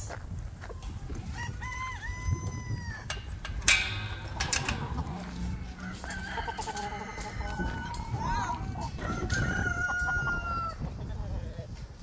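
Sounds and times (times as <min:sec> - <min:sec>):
rooster crowing: 0:01.3 - 0:03.2, 0:05.2 - 0:10.8.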